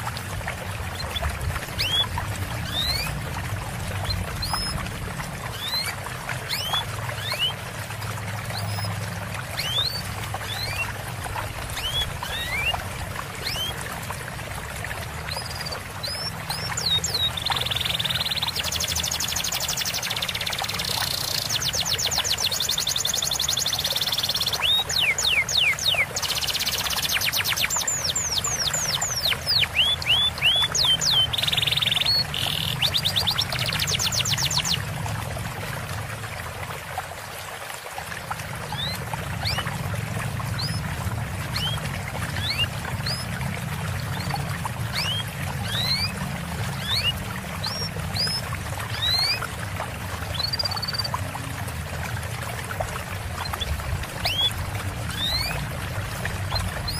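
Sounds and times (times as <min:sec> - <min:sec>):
trickle of running water: 0:00.0 - 0:56.9
small songbirds singing: 0:00.8 - 0:03.2, 0:03.9 - 0:07.6, 0:08.4 - 0:13.8, 0:15.2 - 0:34.9, 0:38.6 - 0:39.7, 0:40.4 - 0:40.9, 0:41.5 - 0:43.4, 0:44.0 - 0:49.5, 0:50.2 - 0:51.2, 0:53.4 - 0:56.9.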